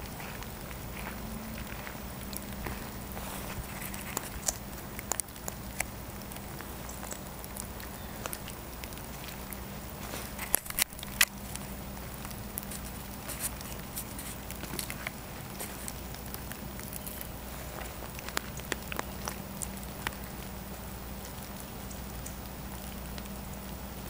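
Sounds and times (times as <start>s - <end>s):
footsteps crunching dry leaves: 0.0s - 20.0s
twigs cracking: 0.0s - 23.7s.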